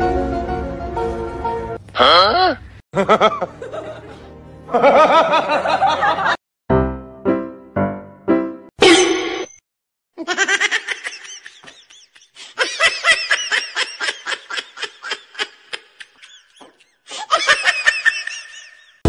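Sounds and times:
person laughing hard: 2.0 - 6.4, 10.2 - 19.0.

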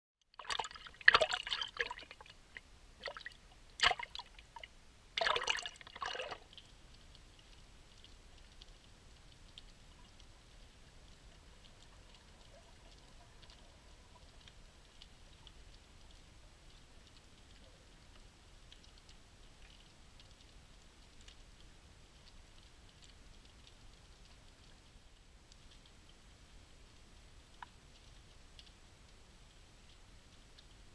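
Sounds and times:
seawater splashing: 0.4 - 6.6
underwater crackling clicks: 0.4 - 26.3, 26.9 - 30.9.

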